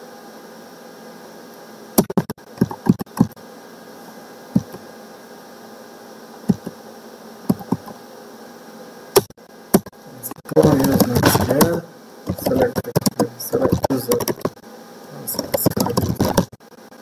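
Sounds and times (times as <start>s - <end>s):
steady hiss and hum: 0.0s - 17.0s
keyboard keystrokes: 9.2s - 14.6s, 15.3s - 16.5s.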